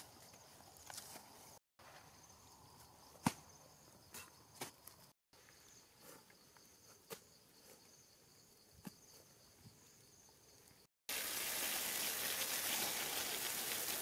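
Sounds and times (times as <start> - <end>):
insects chirring: 0.0 - 10.9.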